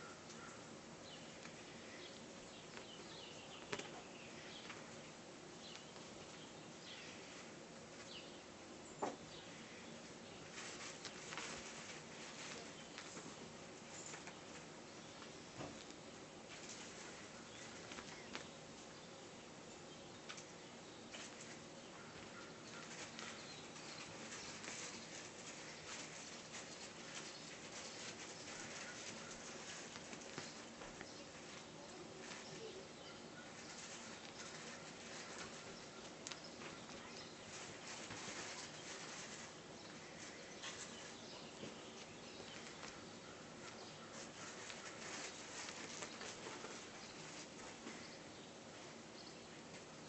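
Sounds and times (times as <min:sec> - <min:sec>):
kitten paws scratching fabric: 0:10.2 - 0:14.7, 0:21.1 - 0:32.8, 0:33.4 - 0:48.1.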